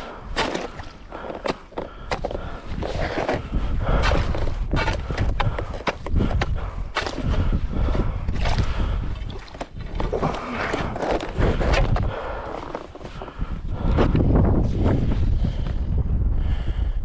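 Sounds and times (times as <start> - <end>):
crunching on snow-covered ice: 0.1 - 7.6
wind buffeting microphone: 1.9 - 17.0.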